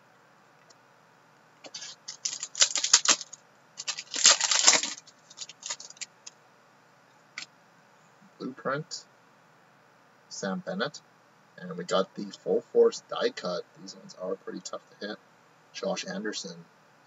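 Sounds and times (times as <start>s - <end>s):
cards clicking: 1.7s - 6.0s
foil wrapper crinkling and tearing: 1.7s - 6.1s.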